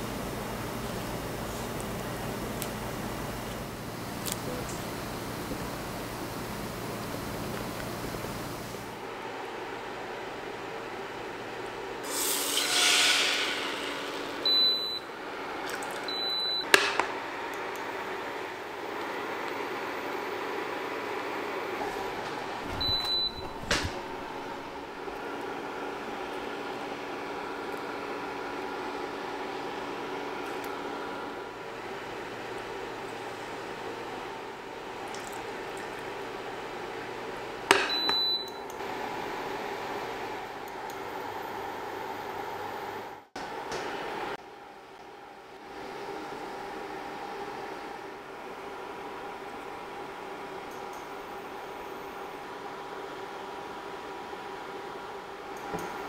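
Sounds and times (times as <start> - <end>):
cooktop beeping: 14.0 - 15.1, 22.6 - 25.1, 37.7 - 38.7.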